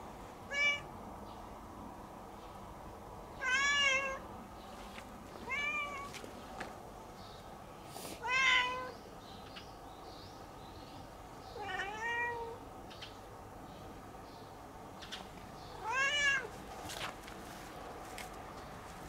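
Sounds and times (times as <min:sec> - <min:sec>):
cat meowing: 0:00.5 - 0:00.9, 0:03.4 - 0:04.2, 0:05.4 - 0:06.1, 0:08.2 - 0:09.0, 0:11.6 - 0:12.6, 0:15.8 - 0:16.5.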